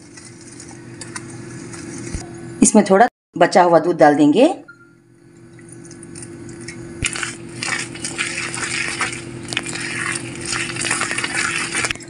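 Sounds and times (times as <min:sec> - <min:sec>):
whisk stirring thick batter: 0:07.0 - 0:12.0.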